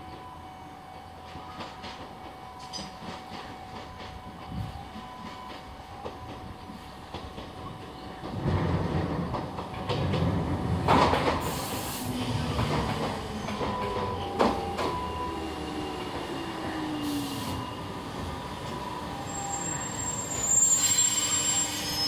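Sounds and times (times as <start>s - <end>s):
falling tones of slowing train: 0.0s - 22.0s
train wheels rumbling on rails: 0.1s - 22.0s
brake screech: 19.5s - 22.0s.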